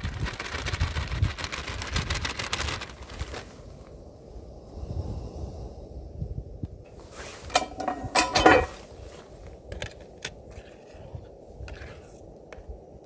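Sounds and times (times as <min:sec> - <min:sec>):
hard objects clattering: 0:07.5 - 0:08.8.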